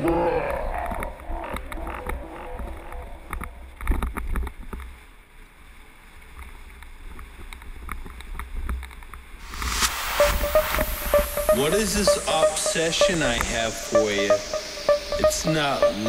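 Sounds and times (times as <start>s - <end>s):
hiss: 9.4s - 14.8s.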